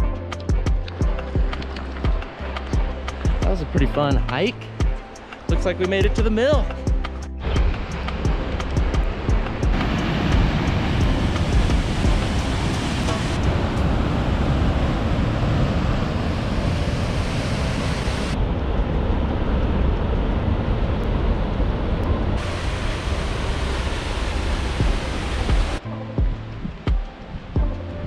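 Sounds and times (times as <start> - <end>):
waterfall and river rushing: 7.4 - 27.6.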